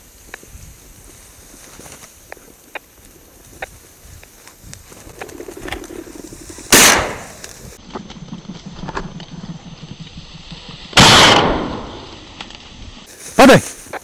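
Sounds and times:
shotgun shots: 6.7s - 7.4s, 11.0s - 12.0s.

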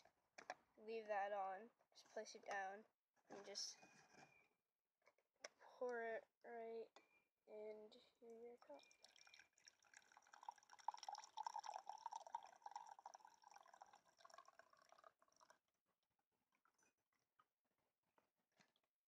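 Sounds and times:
tea pouring into mug: 8.7s - 15.6s.

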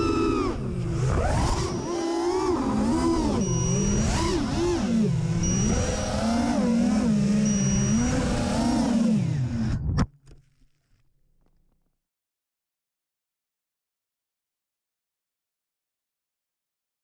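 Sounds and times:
quadcopter motors whining: 0.0s - 9.9s.

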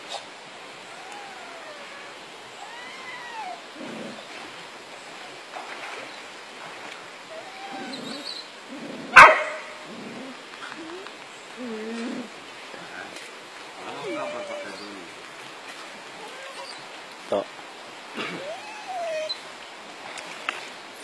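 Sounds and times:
dog barking sharply: 9.2s - 9.6s
dog yipping and whining: 18.4s - 19.4s.

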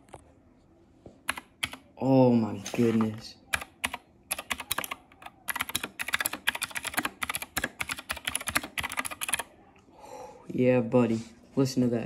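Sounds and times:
fast mechanical keyboard typing: 1.3s - 1.8s, 2.8s - 9.5s.

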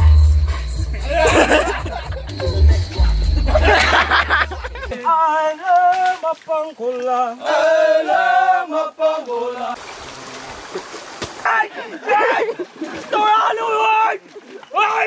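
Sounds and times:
music with heavy bass line: 0.0s - 4.9s
person singing unaccompanied: 0.0s - 9.8s.

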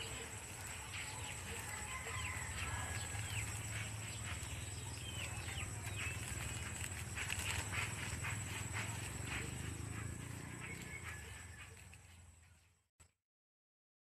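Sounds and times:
leaves and plastic rustling: 0.0s - 9.3s
birds chirping: 0.0s - 12.9s.

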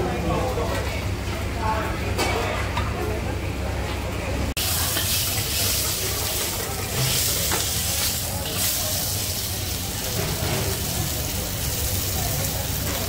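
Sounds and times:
oil sizzling in a wok: 4.6s - 13.0s.

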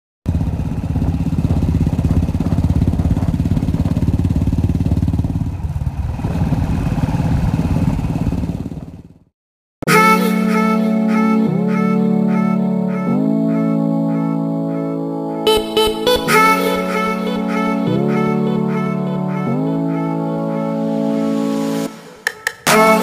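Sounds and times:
motorcycle engine thumping: 0.3s - 9.2s
music: 9.8s - 23.0s.

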